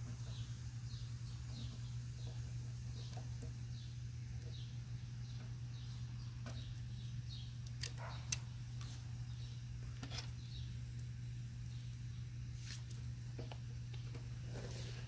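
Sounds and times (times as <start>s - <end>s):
steady low hum: 0.0s - 15.0s
bird chirping: 0.2s - 9.7s.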